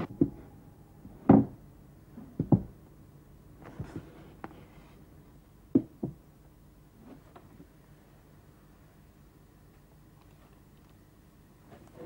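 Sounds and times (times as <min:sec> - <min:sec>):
click: 0:10.2 - 0:11.0.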